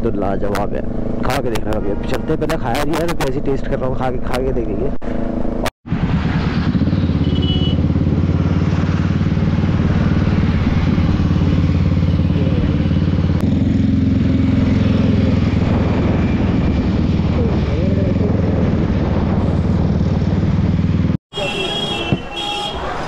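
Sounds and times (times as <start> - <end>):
motorcycle engine running: 5.9 - 21.2.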